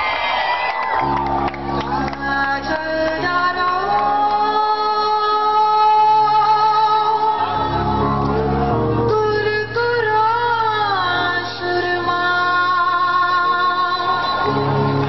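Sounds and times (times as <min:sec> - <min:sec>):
rock band playing: 0:01.0 - 0:04.3, 0:07.4 - 0:09.3, 0:13.5 - 0:15.0
woman singing a long note: 0:01.9 - 0:14.8.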